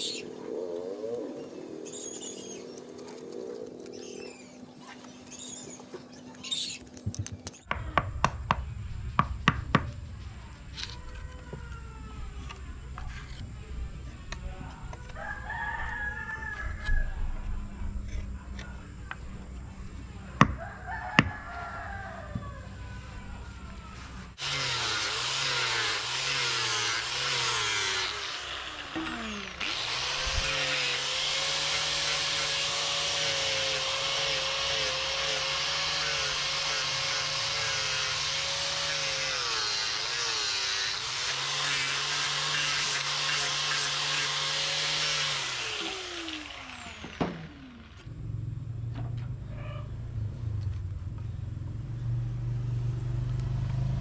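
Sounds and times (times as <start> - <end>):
electric grinder grinding steel: 24.3 - 48.1.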